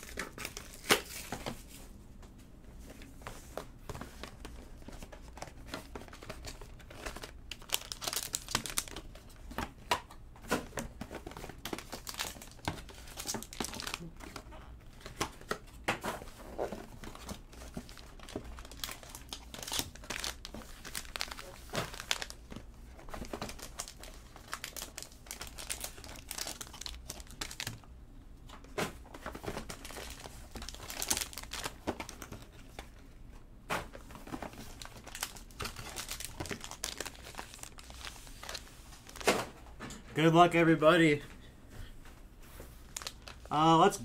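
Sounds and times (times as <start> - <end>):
foil wrappers crinkling: 4.3 - 9.4, 11.2 - 15.5, 16.8 - 27.8, 29.3 - 32.5, 34.1 - 39.3, 42.8 - 44.0.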